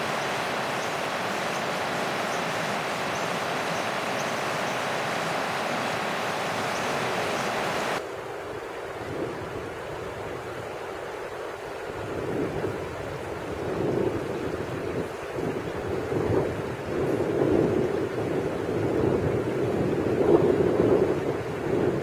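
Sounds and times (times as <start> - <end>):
river rapids rushing over rocks: 0.0 - 8.0.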